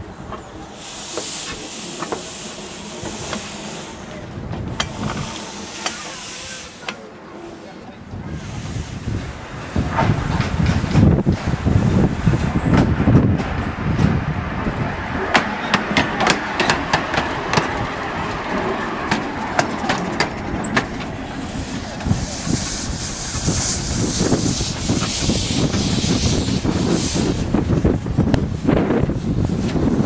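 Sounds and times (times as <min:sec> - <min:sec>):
steam hissing: 0:00.2 - 0:10.0, 0:19.6 - 0:27.8
wind on microphone: 0:08.0 - 0:15.4, 0:20.1 - 0:30.0.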